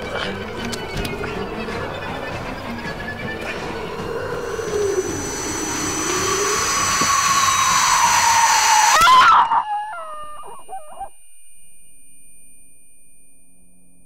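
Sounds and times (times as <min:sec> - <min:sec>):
shrieking wail: 0:03.5 - 0:11.1
wavering cries of pain: 0:07.9 - 0:11.0.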